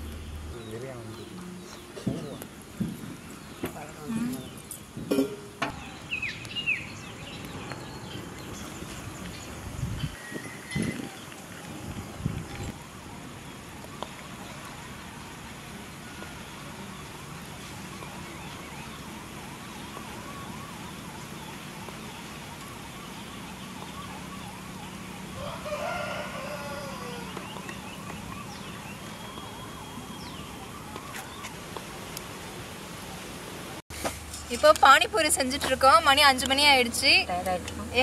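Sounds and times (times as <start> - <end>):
rooster crowing: 25.3 - 27.5.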